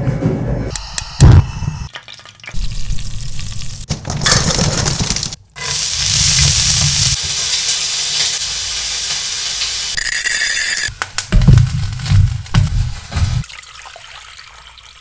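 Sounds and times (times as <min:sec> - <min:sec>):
seafood sizzling in hot oil: 0:05.7 - 0:13.5.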